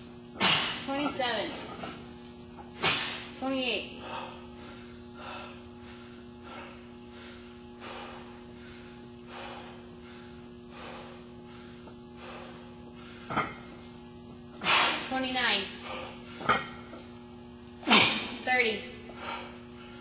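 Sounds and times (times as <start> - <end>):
man breathing hard: 4.0 - 13.3, 19.0 - 20.0.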